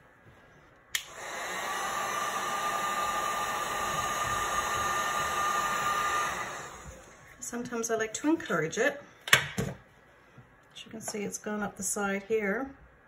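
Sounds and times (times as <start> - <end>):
heat gun switch click: 1.0 - 1.2
heat gun blowing: 1.0 - 7.3.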